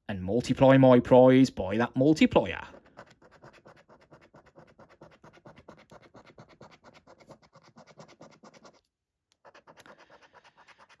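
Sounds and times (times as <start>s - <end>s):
coin scratching a scratchcard: 2.7s - 11.0s.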